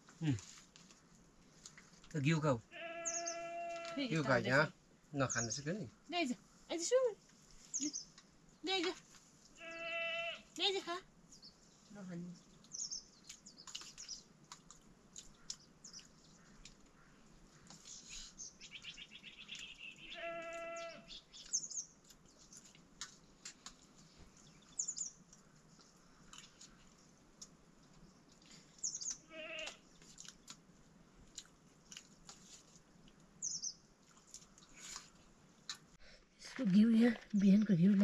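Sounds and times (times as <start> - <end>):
livestock bleating: 2.7 - 4.2, 9.6 - 10.5, 20.1 - 21.1, 29.3 - 29.8
high bird chirps: 3.0 - 3.5, 17.9 - 21.9.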